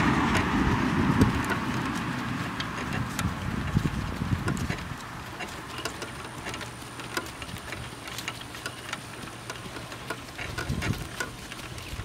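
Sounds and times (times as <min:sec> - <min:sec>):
cart and harness rattling: 0:00.0 - 0:12.0.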